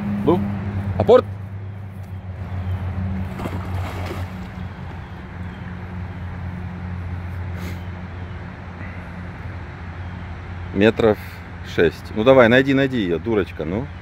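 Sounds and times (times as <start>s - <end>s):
dog splashing into water: 3.2s - 4.7s
dog paddling: 3.2s - 5.0s.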